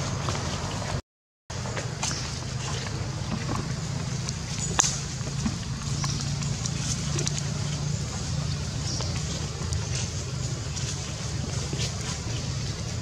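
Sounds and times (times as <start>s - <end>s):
leaf litter clicks and rustles: 1.6s - 13.0s
low rumble: 3.2s - 13.0s.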